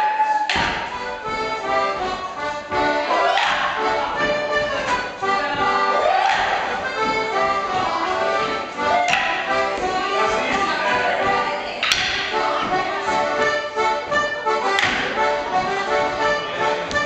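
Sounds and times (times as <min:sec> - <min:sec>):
accordion playing dance tune: 0:00.0 - 0:17.0
wooden sticks clacking: 0:03.2 - 0:03.8, 0:06.0 - 0:07.3, 0:08.8 - 0:10.6, 0:11.8 - 0:12.5, 0:14.6 - 0:15.2.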